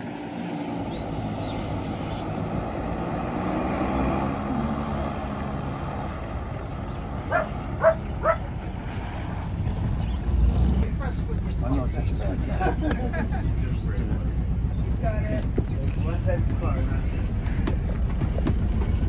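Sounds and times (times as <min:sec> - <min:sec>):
boat engine running: 0:00.0 - 0:19.0
dog barking: 0:07.3 - 0:08.5.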